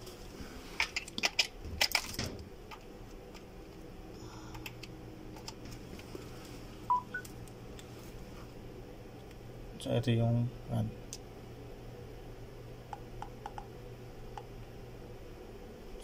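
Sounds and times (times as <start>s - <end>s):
short electronic beeps: 6.9s - 7.2s.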